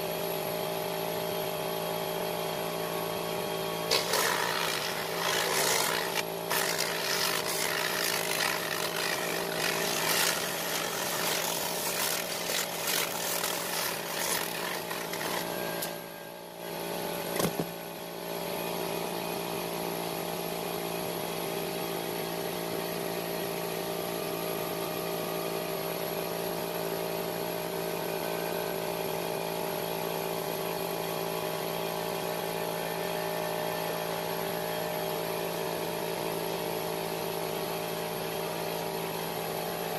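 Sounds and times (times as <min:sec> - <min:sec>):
motor humming: 0:03.8 - 0:16.1.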